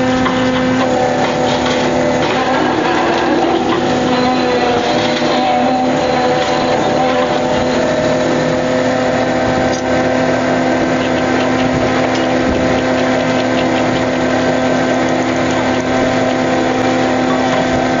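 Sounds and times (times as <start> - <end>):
boat engine and machinery drone: 0.0 - 18.0.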